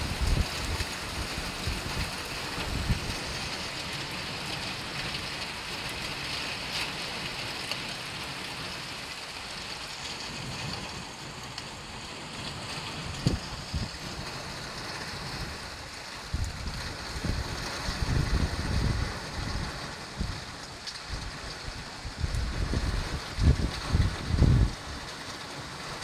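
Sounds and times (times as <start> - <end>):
heavy rain on a flooded street: 0.0 - 26.0.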